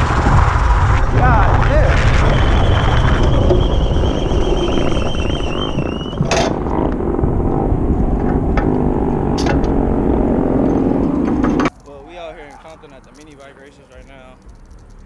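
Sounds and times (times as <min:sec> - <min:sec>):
high wavering whine: 0:00.0 - 0:11.7
vehicle engines rumbling: 0:00.0 - 0:15.0.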